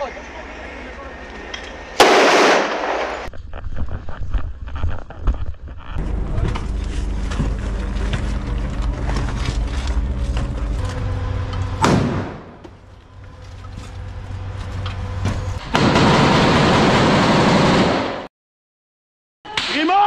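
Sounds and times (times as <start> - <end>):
loud sharp bang: 2.0 - 3.3, 11.8 - 12.6
low mechanical hum: 5.7 - 15.6.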